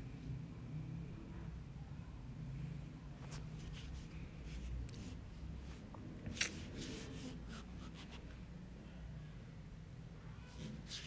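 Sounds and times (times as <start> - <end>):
faint scratching and rubbing: 3.2 - 5.9, 10.4 - 11.0.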